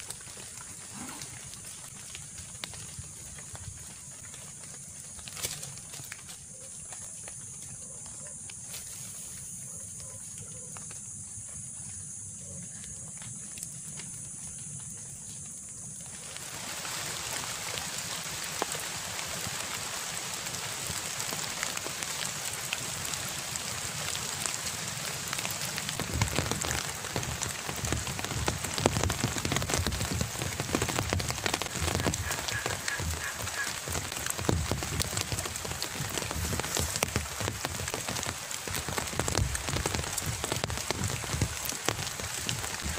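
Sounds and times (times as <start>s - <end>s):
rain falling on river: 0.0s - 42.9s
heavy raindrop hits: 16.2s - 42.9s.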